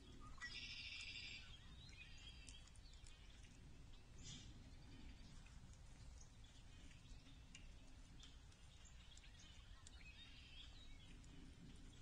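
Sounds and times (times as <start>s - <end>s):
distant bird chirps: 0.0s - 12.0s.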